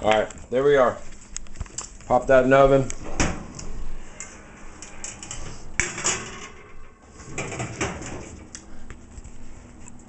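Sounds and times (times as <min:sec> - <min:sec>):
oven door shutting: 0:03.0 - 0:08.5.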